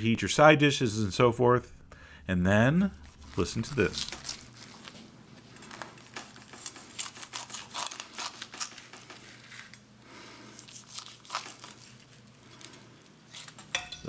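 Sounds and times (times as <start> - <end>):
knife slicing crackling skin: 5.6 - 9.8, 10.6 - 13.8.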